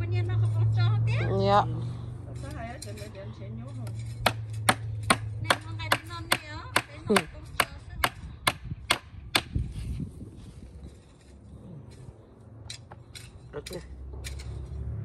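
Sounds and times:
rhythmic chopping: 4.2s - 9.5s.

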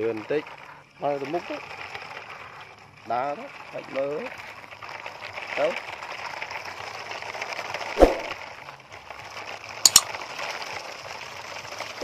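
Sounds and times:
sharp clicks: 9.9s - 10.1s.

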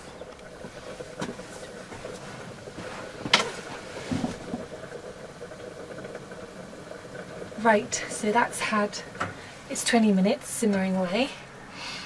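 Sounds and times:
gas burner hissing: 0.0s - 12.0s
dull knocks: 2.8s - 4.7s.

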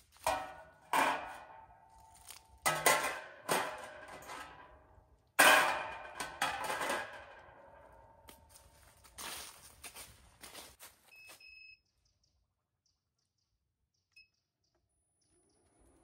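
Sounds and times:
grill grate clanking on metal: 0.2s - 8.0s.

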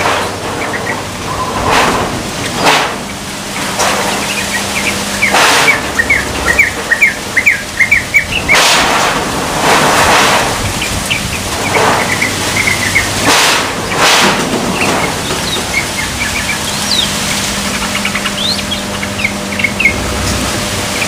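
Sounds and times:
young bird chirping: 14.8s - 20.0s.

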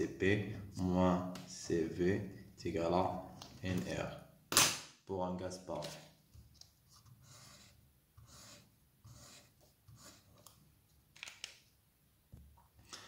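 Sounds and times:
highlighter scratching on paper: 6.9s - 10.5s.

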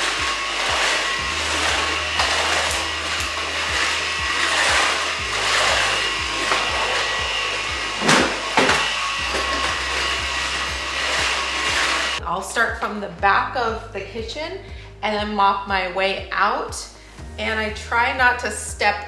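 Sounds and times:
stick vacuum whirring: 0.0s - 12.2s.

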